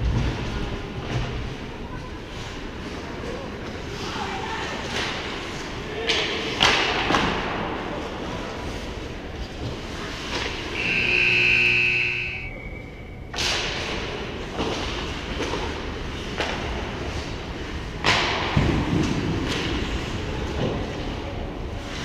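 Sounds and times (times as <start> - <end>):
high-pitched signal tone: 10.8 - 13.2.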